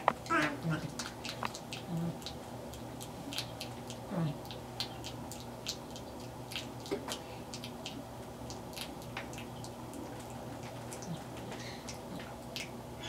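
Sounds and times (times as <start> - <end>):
soft clicks and wet ticks: 0.0 - 12.8
steady low hum: 0.0 - 13.0.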